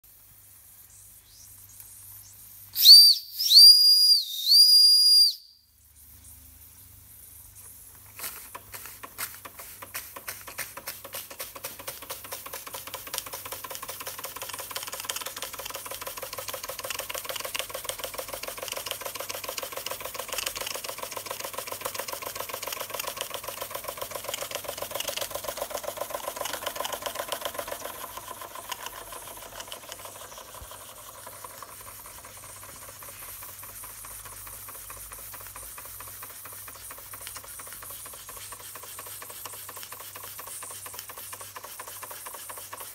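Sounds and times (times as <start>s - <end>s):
steam hissing: 8.2s - 42.9s
model steam engine chuffing: 8.7s - 42.9s.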